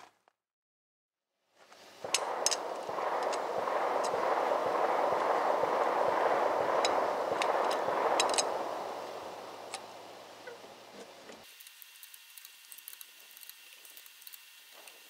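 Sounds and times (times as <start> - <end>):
loud rushing noise: 2.0 - 11.4.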